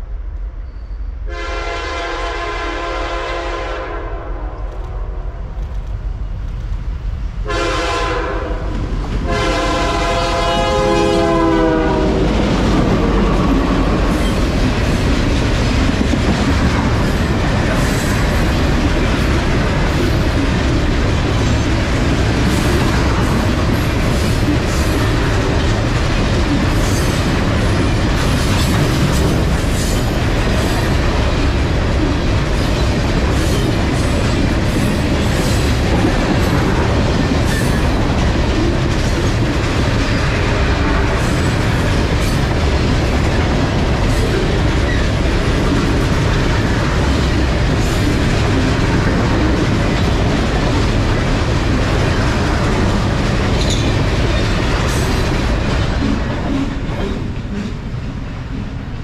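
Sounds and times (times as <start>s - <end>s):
train horn blasts: 1.2s - 5.1s, 7.4s - 12.4s.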